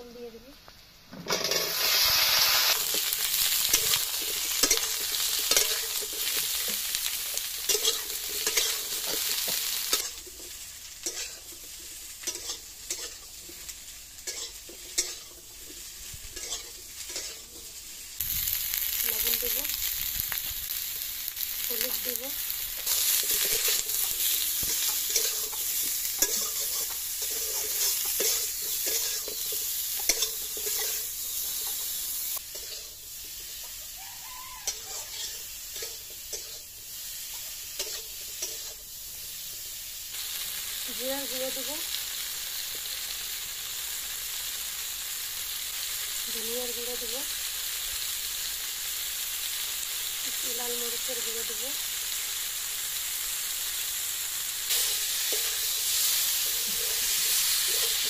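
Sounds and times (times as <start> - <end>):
vegetables sizzling in hot oil: 0.0 - 58.0
metal spatula scraping pan: 1.2 - 6.7, 7.7 - 11.6, 14.2 - 17.7, 22.9 - 31.8, 32.5 - 33.0, 34.6 - 36.7.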